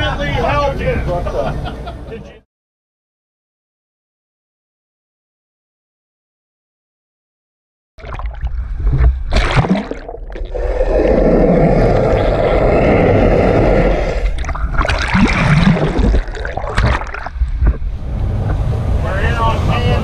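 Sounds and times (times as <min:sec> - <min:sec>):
water splashing and gurgling: 0:08.0 - 0:18.1
muffled underwater rush: 0:08.0 - 0:20.0.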